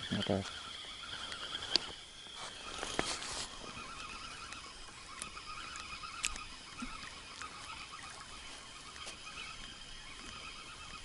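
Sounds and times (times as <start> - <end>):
fishing reel whirring: 0.0 - 11.0
sharp clicks: 3.9 - 9.8.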